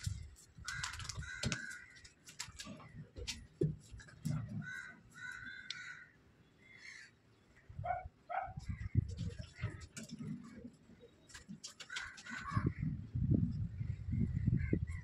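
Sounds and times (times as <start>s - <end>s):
crows cawing: 0.6s - 2.6s, 4.4s - 7.2s, 11.8s - 12.9s.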